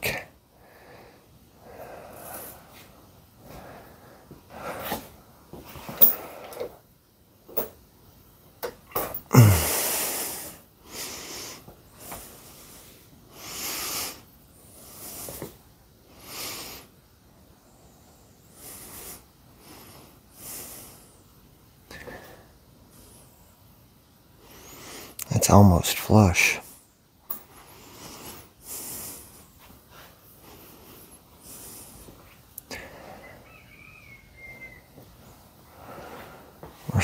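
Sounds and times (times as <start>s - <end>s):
person breathing hard: 0.0s - 5.2s, 9.2s - 15.5s, 27.4s - 34.2s, 35.6s - 36.8s.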